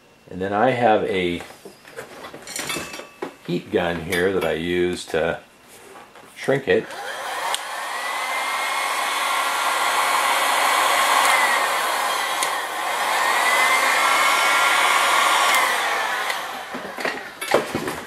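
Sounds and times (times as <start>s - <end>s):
heat gun blowing with fan whine: 6.6s - 17.9s.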